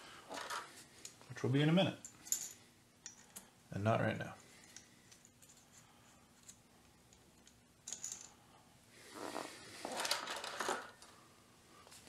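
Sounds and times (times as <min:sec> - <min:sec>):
small metal parts clinking: 0:02.0 - 0:03.5, 0:04.6 - 0:05.8, 0:06.4 - 0:08.4.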